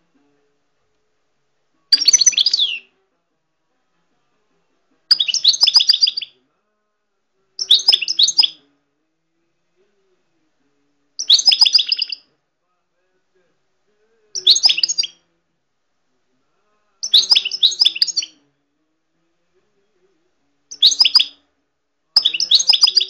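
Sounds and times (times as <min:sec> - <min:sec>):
songbird twittering: 0:01.9 - 0:02.9, 0:05.1 - 0:06.3, 0:07.6 - 0:08.6, 0:11.2 - 0:12.2, 0:14.4 - 0:15.2, 0:17.0 - 0:18.4, 0:20.7 - 0:21.4, 0:22.2 - 0:23.0.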